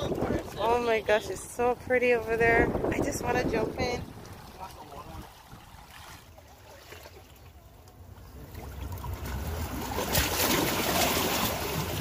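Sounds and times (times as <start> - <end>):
water washing over rocks: 9.2 - 12.0.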